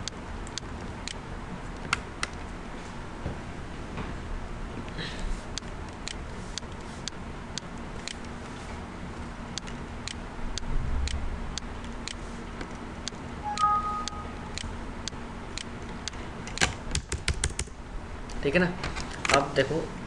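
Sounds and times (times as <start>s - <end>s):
light sharp ticks: 14.1s - 16.7s.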